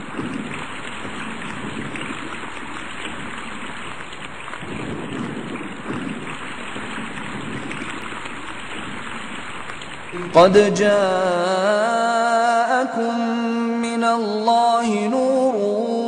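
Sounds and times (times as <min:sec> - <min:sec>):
rushing wind and waves: 0:00.0 - 0:11.7.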